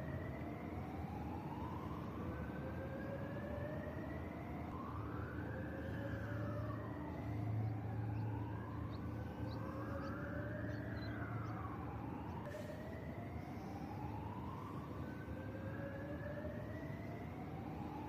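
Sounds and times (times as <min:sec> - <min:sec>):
emergency vehicle sirens wailing: 0:00.0 - 0:18.0.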